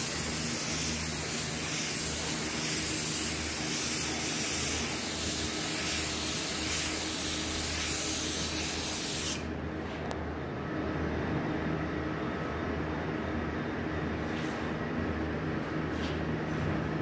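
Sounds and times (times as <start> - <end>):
paint spray gun hissing: 0.0 - 9.5.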